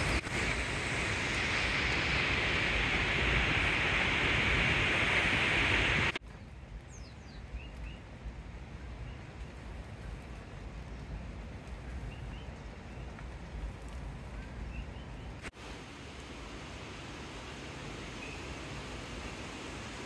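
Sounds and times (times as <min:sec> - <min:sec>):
waterfall roaring: 0:00.0 - 0:06.2, 0:15.6 - 0:20.0.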